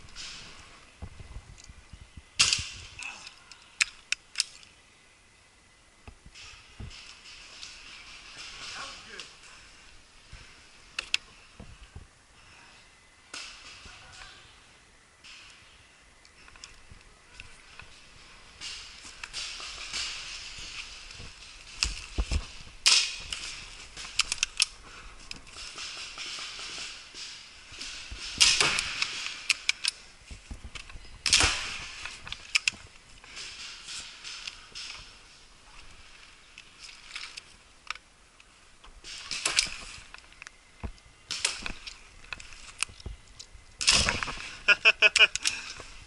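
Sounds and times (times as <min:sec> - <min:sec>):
sharp pops: 0:16.3 - 0:35.1
gear rustling and knocking: 0:16.4 - 0:46.0.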